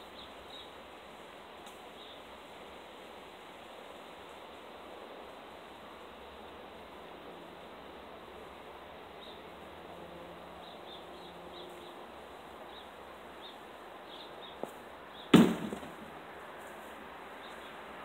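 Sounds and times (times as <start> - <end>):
thrown object thudding on target: 15.4 - 16.1.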